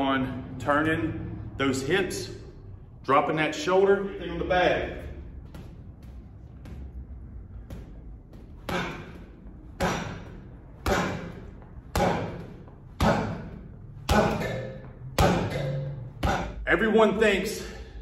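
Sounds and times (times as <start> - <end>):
punches thudding on punching bag: 4.8 - 16.6.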